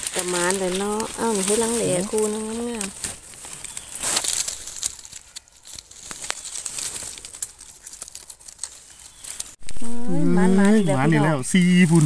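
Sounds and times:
dry leaves rustling and crackling: 0.0 - 12.0.

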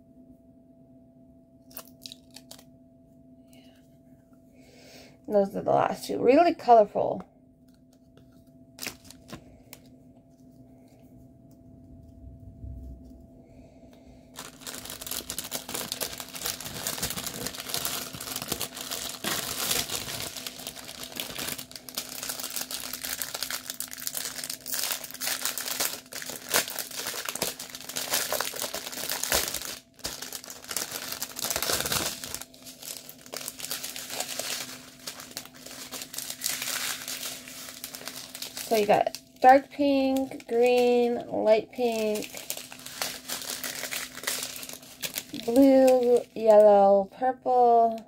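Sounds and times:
plastic packaging crinkling: 1.6 - 2.7, 7.6 - 10.6, 14.2 - 46.8.

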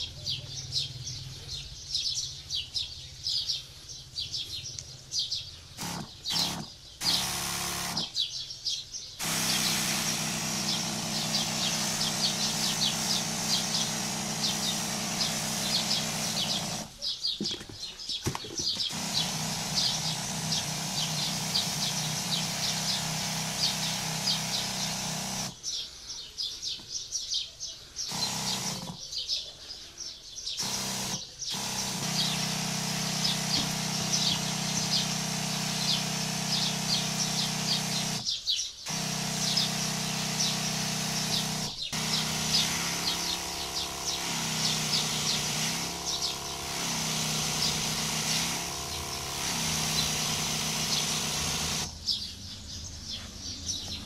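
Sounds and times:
birds chirping: 0.0 - 54.0
nozzle spraying mist: 5.8 - 8.1, 9.2 - 17.0, 18.8 - 25.6, 28.1 - 29.0, 30.6 - 38.2, 38.9 - 51.9
sprayer pump humming: 5.8 - 8.2, 9.2 - 17.6, 18.3 - 25.6, 28.1 - 29.0, 30.6 - 52.0.

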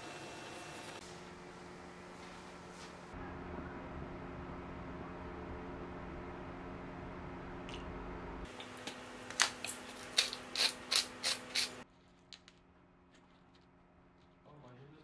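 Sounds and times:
steady low hum: 0.6 - 15.0
spice grinder crunching: 8.5 - 11.8.

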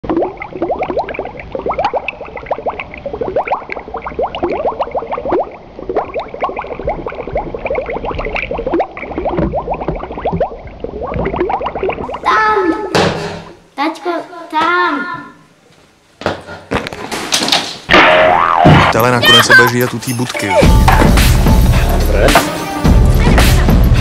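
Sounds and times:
water bubbling: 0.0 - 12.3.

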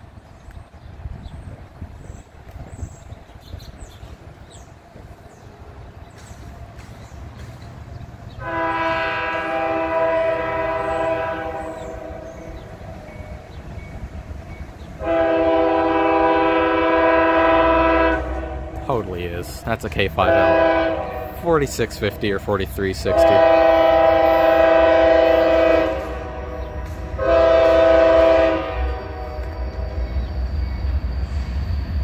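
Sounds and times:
locomotive air horn blasts: 8.4 - 12.6, 15.0 - 19.0, 20.2 - 21.5, 23.0 - 30.1.

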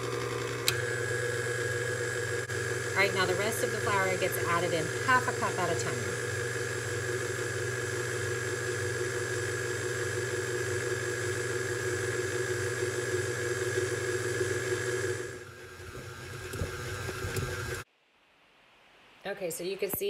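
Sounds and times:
stand mixer motor whirring: 0.0 - 17.9.

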